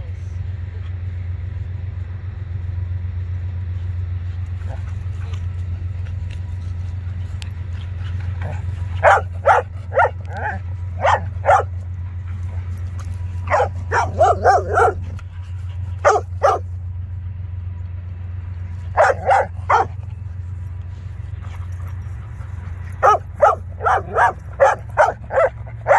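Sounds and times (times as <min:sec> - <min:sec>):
dogs barking: 0:08.0 - 0:16.8, 0:18.8 - 0:20.2, 0:21.8 - 0:25.9.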